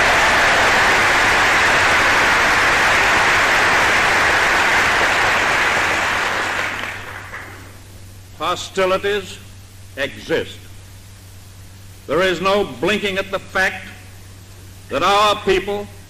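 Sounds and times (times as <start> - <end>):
audience applauding: 0.0 - 7.8
low recording hum: 0.0 - 16.0.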